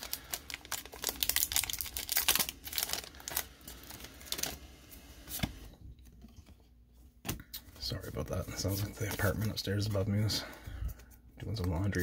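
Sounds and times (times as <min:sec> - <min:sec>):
foil wrapper crinkling: 0:00.0 - 0:04.6.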